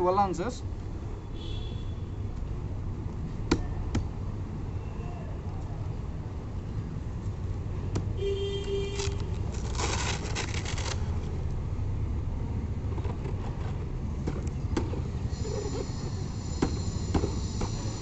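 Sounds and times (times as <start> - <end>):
velcro strap ripping: 9.0 - 11.2.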